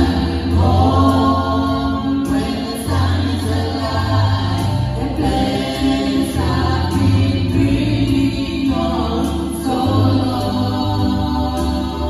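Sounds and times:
vocal group singing gospel: 0:00.0 - 0:12.0.

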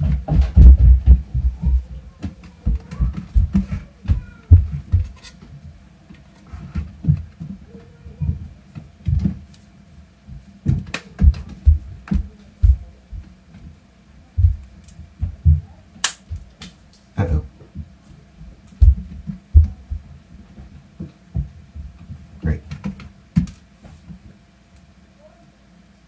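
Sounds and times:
sharp click: 0:16.0 - 0:16.3.

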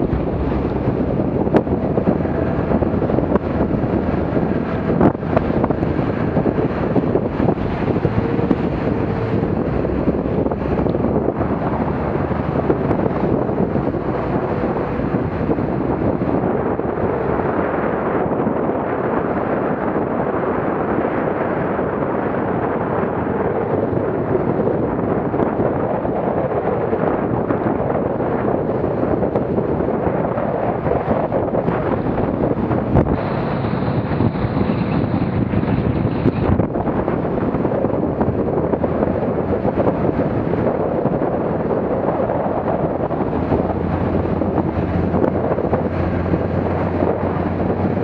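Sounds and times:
motorboat motor: 0:00.0 - 0:48.0
wind buffeting microphone: 0:00.0 - 0:48.0.

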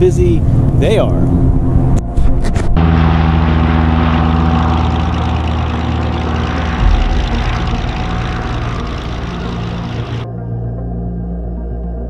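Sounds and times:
low bump: 0:02.8 - 0:10.3
propeller airplane engine: 0:02.8 - 0:10.3.

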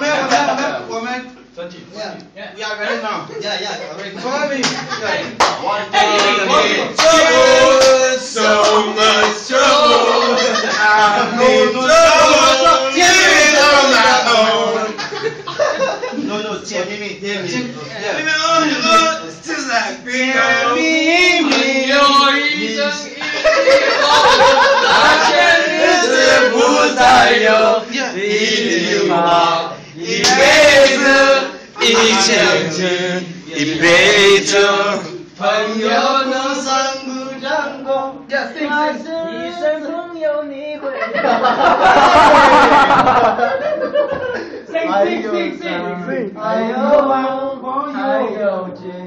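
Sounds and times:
people laughing: 0:00.0 - 0:00.9, 0:03.2 - 0:05.4, 0:09.7 - 0:16.4, 0:23.1 - 0:27.0, 0:31.8 - 0:32.7, 0:40.8 - 0:44.8
man singing: 0:06.4 - 0:15.0, 0:17.5 - 0:23.2, 0:25.1 - 0:41.0.

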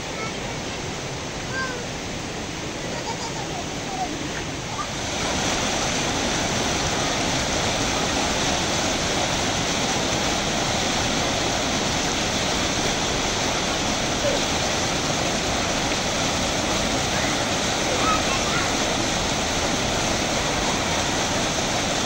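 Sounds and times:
rushing stream water: 0:00.0 - 0:22.0.

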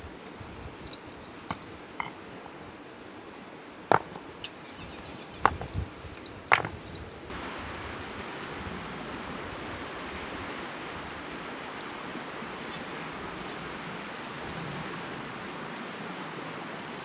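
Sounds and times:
faint steady hiss: 0:00.0 - 0:17.0
sharp clinks and knocks: 0:00.8 - 0:02.2, 0:03.9 - 0:07.2.

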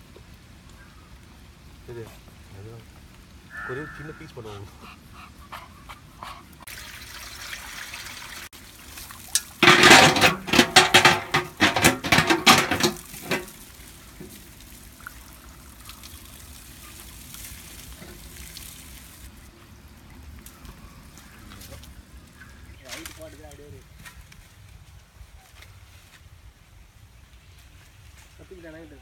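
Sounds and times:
water pouring into metal pot: 0:06.7 - 0:19.3.

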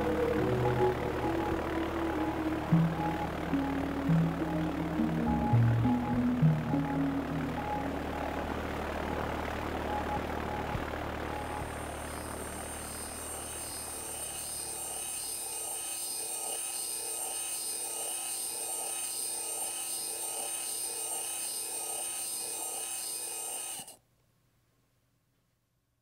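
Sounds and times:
model engine whining and clattering: 0:06.1 - 0:24.0.

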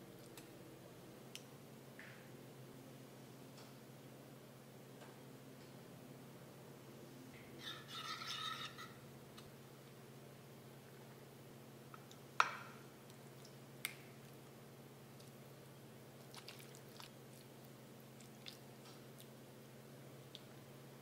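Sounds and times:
low steady hum: 0:00.0 - 0:21.0
wet squishing of sauce: 0:16.2 - 0:19.4.

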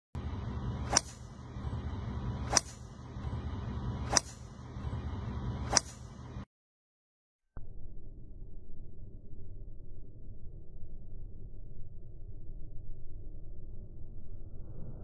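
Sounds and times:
steady low rumble: 0:00.2 - 0:06.5, 0:07.6 - 0:15.0
golf club striking ball: 0:00.8 - 0:01.3, 0:02.4 - 0:03.0, 0:04.0 - 0:04.6, 0:05.6 - 0:06.2.

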